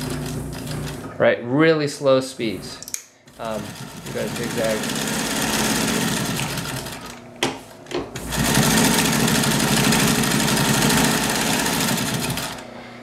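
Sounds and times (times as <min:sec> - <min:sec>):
sewing machine stitching: 0:00.0 - 0:01.1, 0:03.3 - 0:07.2, 0:08.1 - 0:12.6.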